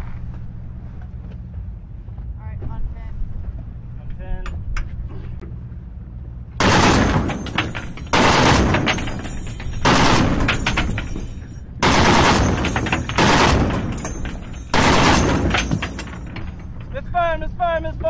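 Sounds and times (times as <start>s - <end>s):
machine gun firing bursts: 6.6s - 9.2s, 9.8s - 10.9s, 11.8s - 15.9s.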